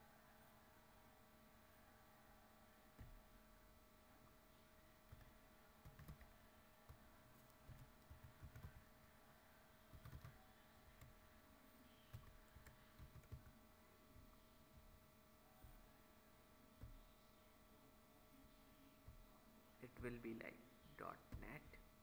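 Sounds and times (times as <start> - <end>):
faint keyboard typing: 5.0 - 9.1, 9.9 - 11.3, 11.9 - 15.0, 16.8 - 17.3.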